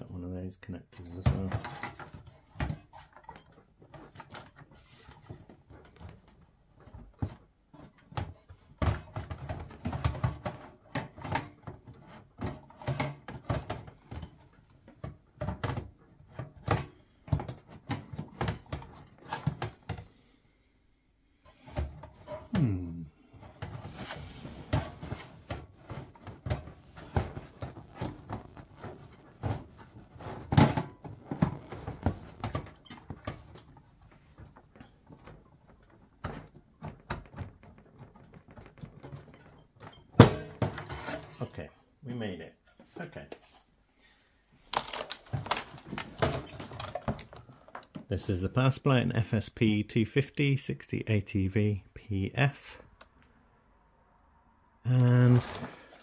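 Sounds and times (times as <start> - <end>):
plastic connectors and metal case rattling: 44.7 - 48.1.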